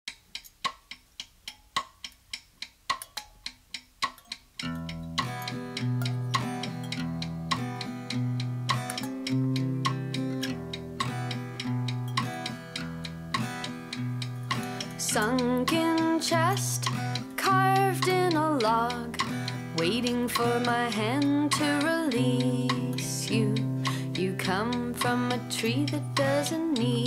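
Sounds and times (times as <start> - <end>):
sharp percussive strikes: 0.1 - 17.4
plucked guitar: 4.2 - 27.0.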